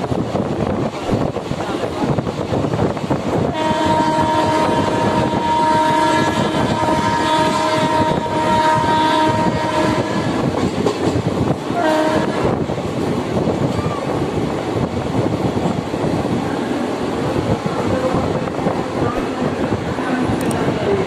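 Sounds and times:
train wheels rumbling on rails: 0:00.0 - 0:21.0
train horn blast: 0:03.4 - 0:10.5, 0:11.7 - 0:12.5.

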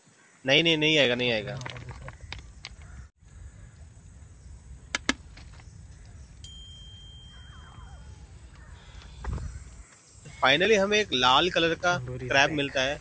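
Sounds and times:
bell-like ding: 0:06.4 - 0:08.3.

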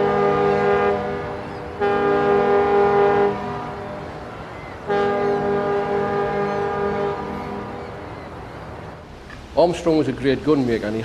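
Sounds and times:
deep horn blasts: 0:00.0 - 0:08.0.

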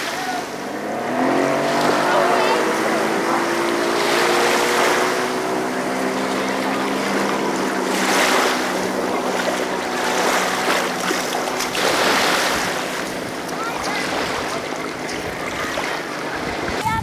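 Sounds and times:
outboard engine drone: 0:00.0 - 0:17.0
small waves washing: 0:00.0 - 0:17.0
wind on microphone: 0:06.4 - 0:17.0.

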